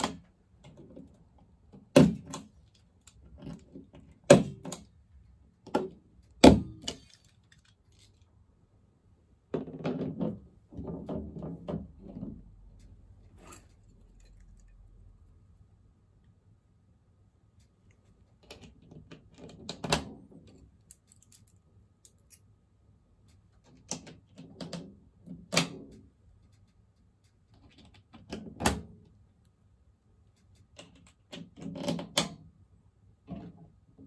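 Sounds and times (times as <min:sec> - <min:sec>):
light metallic rattle: 0:12.7 - 0:15.1.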